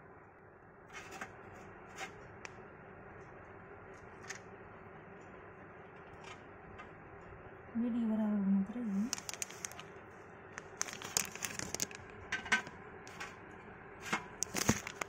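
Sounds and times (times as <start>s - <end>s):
low room hum: 0.0s - 15.0s
light rustles and clicks: 14.1s - 15.0s.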